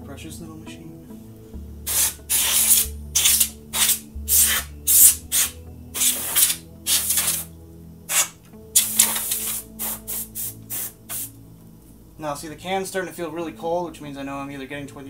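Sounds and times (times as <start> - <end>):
compressed air hissing blasts: 1.9 - 7.5, 8.1 - 11.4.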